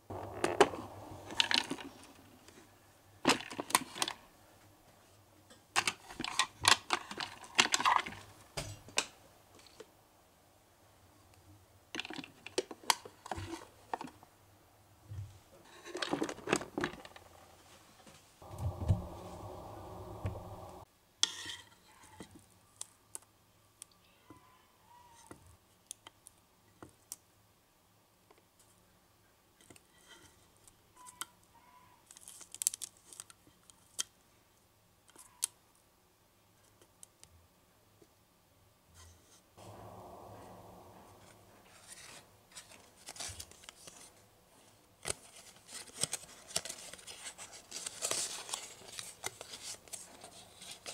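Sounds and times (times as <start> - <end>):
steady hum: 18.4 - 20.9, 39.6 - 42.5
stiff paper rustling: 41.7 - 50.9.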